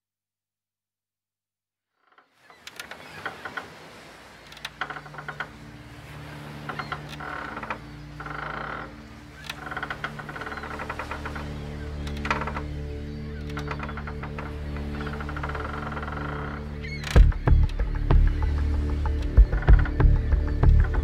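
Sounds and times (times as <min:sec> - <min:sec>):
wooden ship timbers creaking: 0:02.0 - 0:21.0
low music drone: 0:05.5 - 0:21.0.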